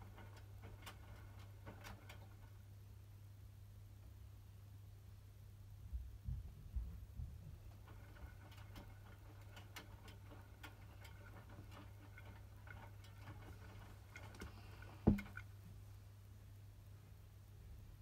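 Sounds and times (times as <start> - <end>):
washing machine drum tumbling: 7.0 - 15.4.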